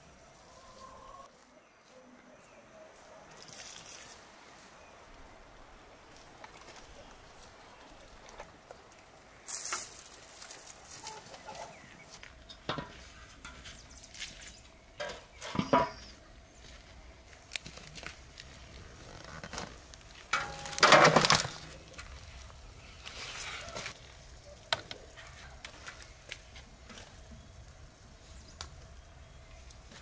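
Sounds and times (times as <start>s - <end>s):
soft scrape: 22.9s - 24.0s.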